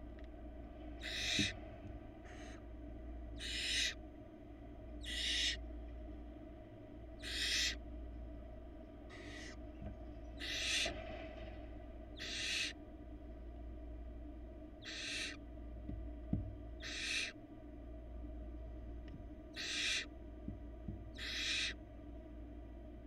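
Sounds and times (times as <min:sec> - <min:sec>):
faint steady hum: 0:00.0 - 0:23.0
owl nestlings hissing begging calls: 0:01.0 - 0:01.6, 0:02.3 - 0:02.6, 0:03.4 - 0:04.0, 0:05.0 - 0:05.6, 0:07.2 - 0:07.8, 0:09.1 - 0:09.6, 0:10.4 - 0:10.9, 0:12.2 - 0:12.8, 0:14.8 - 0:15.4, 0:16.8 - 0:17.4, 0:19.5 - 0:20.1, 0:21.1 - 0:21.8.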